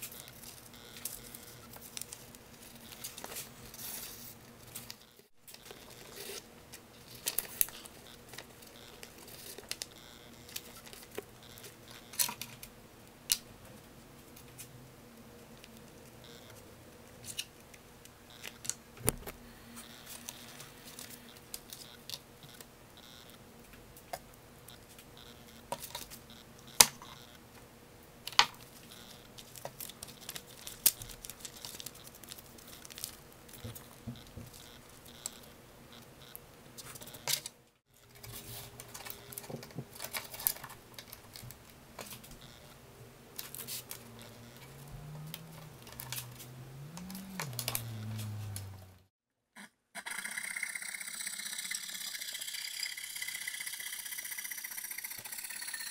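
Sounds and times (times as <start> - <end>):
low wavering hum: 42.5 - 49.1.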